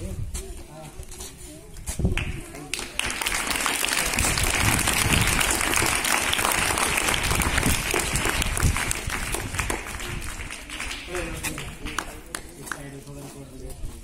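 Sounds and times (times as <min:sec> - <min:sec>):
people applauding: 0:02.2 - 0:13.1.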